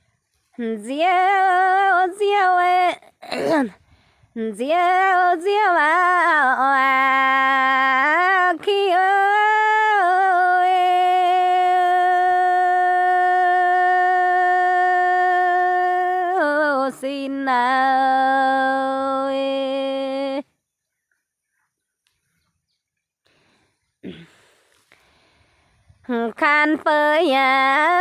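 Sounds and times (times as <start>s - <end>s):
woman singing unaccompanied: 0.4s - 20.7s, 26.0s - 28.0s.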